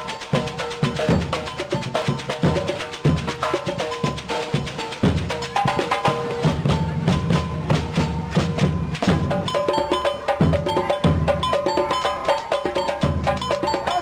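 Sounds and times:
music with fast percussion: 0.0 - 14.0.

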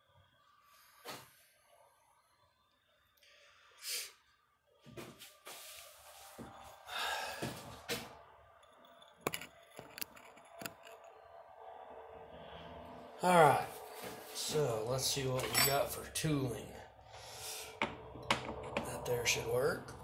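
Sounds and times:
sharp clicks and clinks: 8.6 - 11.3.

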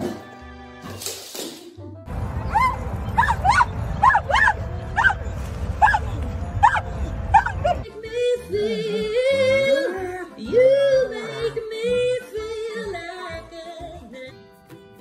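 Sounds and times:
dog howling: 2.4 - 7.8.

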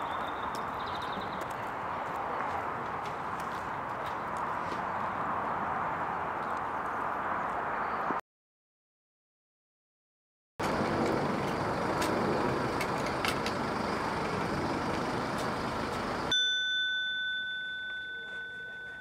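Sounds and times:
outdoor street noise: 0.0 - 8.2, 10.6 - 19.0
doorbell ringing: 16.3 - 19.0.

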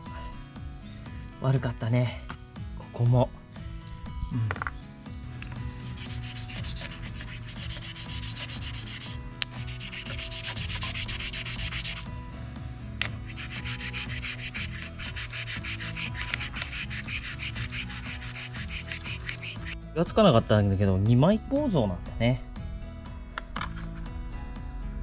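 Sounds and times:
stone rubbing on metal: 5.8 - 12.1, 13.0 - 19.8.

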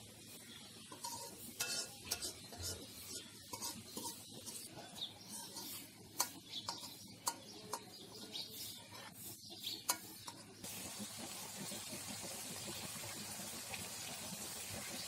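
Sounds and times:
potatoes hissing in a pan: 0.0 - 7.2, 8.5 - 15.0
metal spoon scraping a wok: 0.8 - 10.6.

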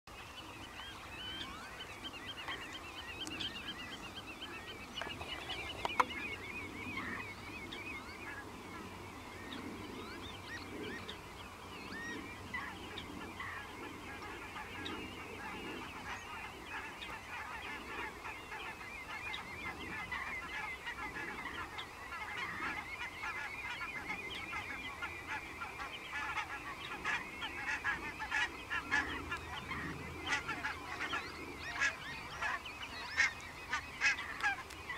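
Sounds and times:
birds chirping and trilling: 0.1 - 34.9.

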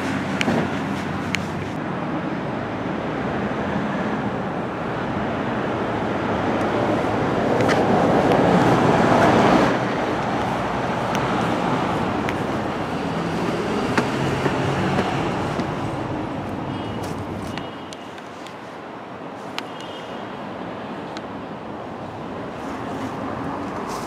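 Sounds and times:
road traffic noise: 0.0 - 24.0
vehicle passing close: 2.6 - 17.6.

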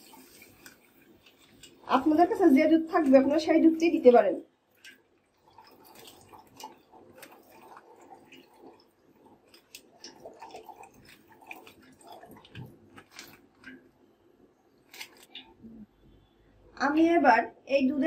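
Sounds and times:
milk pouring into a pot: 0.0 - 15.6
plastic pouch crinkling: 10.4 - 13.7, 14.8 - 15.4.

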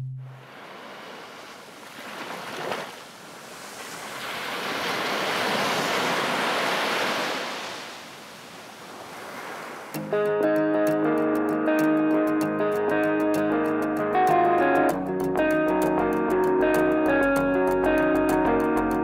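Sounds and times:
ocean surf washing up a beach: 0.3 - 10.0.

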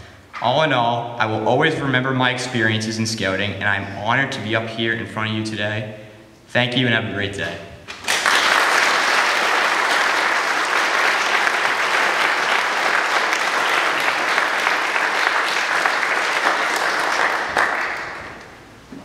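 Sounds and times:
audience applauding: 7.9 - 18.6.

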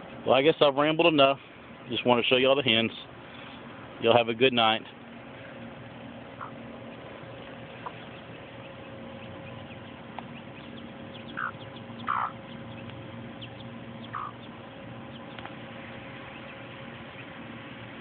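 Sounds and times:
low background hum: 0.0 - 18.0
chicks peeping: 5.8 - 18.0
hen calls: 6.3 - 7.1, 7.7 - 15.4.

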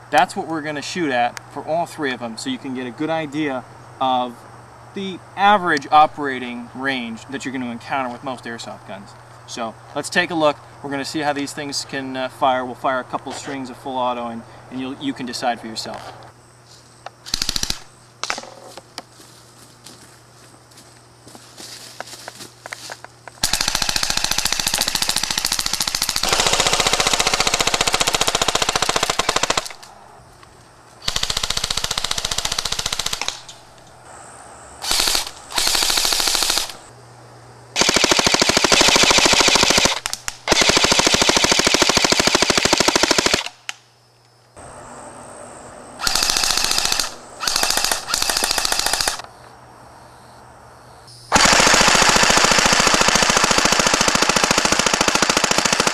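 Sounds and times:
airsoft gun full auto bursts: 17.2 - 17.9, 23.4 - 29.9, 31.0 - 33.4, 34.8 - 36.9, 37.8 - 43.6, 46.0 - 49.2, 51.3 - 55.9.

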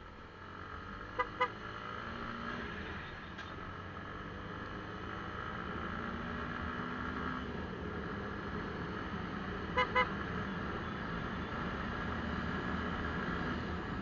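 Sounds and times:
horn beeps: 1.2 - 1.5, 9.7 - 11.5.

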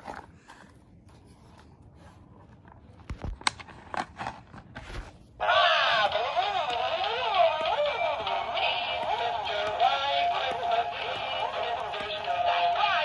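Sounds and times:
toy electronic song: 5.4 - 13.0.

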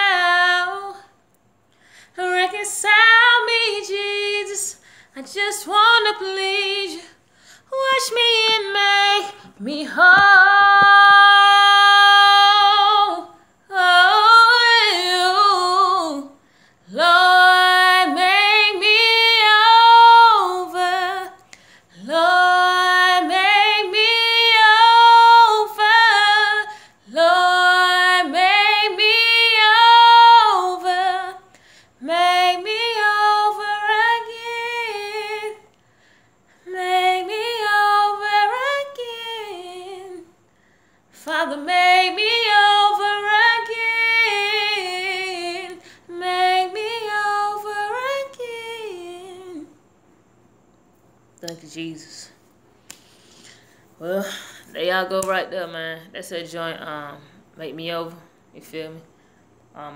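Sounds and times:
woman singing a cappella: 0.0 - 49.9, 51.4 - 59.9
singer breathing: 1.7 - 2.2, 4.8 - 5.2, 7.2 - 7.7, 21.5 - 21.9, 31.5 - 32.0, 40.5 - 41.1, 52.9 - 54.8.

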